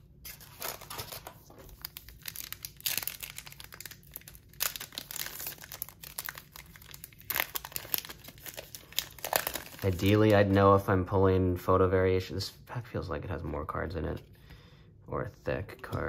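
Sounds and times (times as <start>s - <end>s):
foil wrapper tearing and crinkling: 0.3s - 10.4s.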